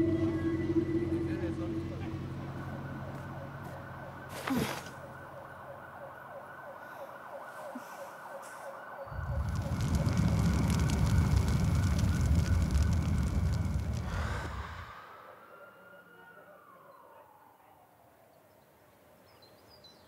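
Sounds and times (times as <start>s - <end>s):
warbling siren tone: 0.0s - 17.7s
missiles launching with crackling rumble: 9.1s - 14.8s.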